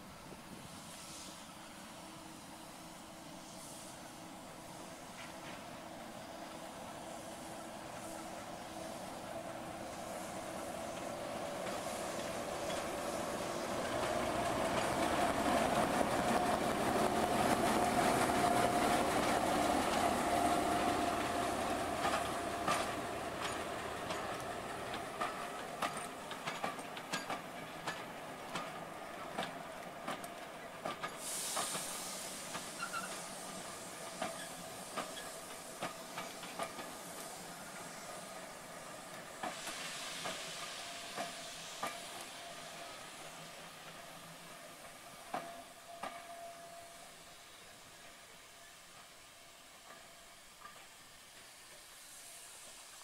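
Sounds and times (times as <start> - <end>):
air hiss: 0.0 - 53.0
diesel locomotive engine: 0.0 - 53.0
wheels clicking over rail joints: 20.8 - 31.9, 34.0 - 37.9.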